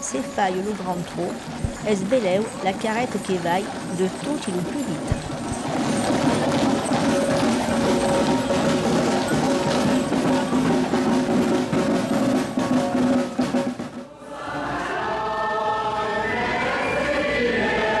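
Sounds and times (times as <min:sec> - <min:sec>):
band music with rapid drumming: 0:00.8 - 0:14.1
choir singing: 0:14.0 - 0:18.0.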